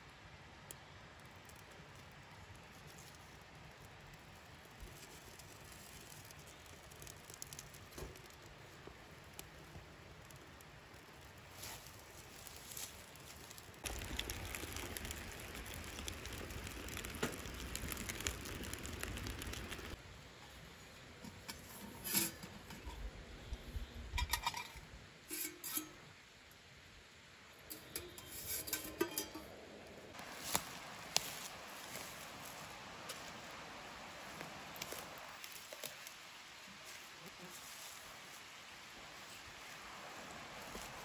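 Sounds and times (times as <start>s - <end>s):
wood fire crackling in stove: 0.1s - 41.0s
rustling: 2.5s - 20.0s, 27.6s - 41.0s
metal pot knocks and clinks: 24.1s - 24.8s, 27.7s - 29.6s.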